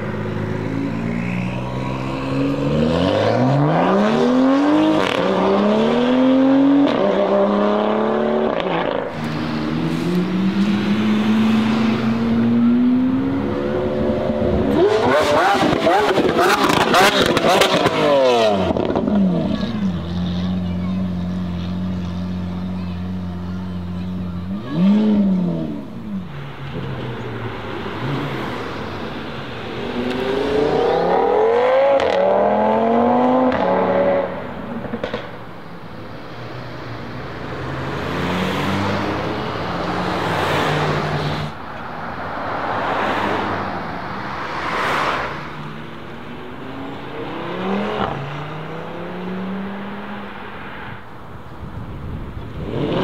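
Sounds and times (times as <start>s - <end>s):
car engine revving and accelerating: 0.0s - 19.9s, 24.4s - 35.3s, 36.3s - 41.6s, 42.2s - 51.1s, 52.4s - 53.0s
car passing by: 8.8s - 18.7s, 36.4s - 51.1s.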